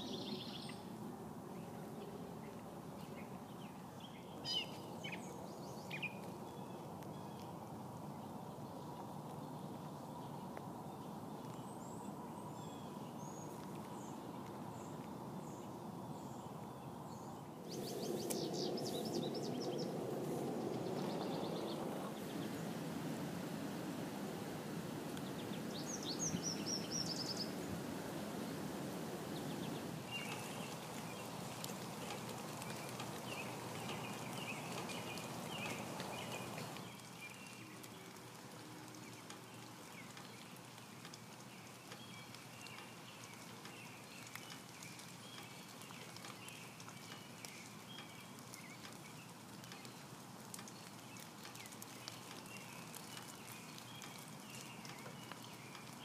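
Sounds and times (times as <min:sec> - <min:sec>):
small birds chirping: 0:00.0 - 0:00.9, 0:01.6 - 0:23.1, 0:23.8 - 0:56.0
steady hiss: 0:17.6 - 0:56.0.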